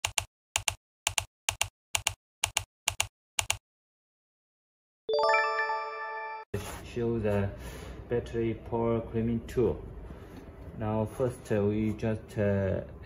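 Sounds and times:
synthesized chime chord: 5.1s - 6.5s.

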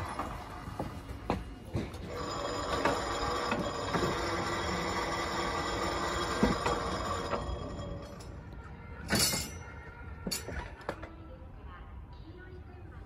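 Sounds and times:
electric bell ringing: 2.1s - 8.3s.

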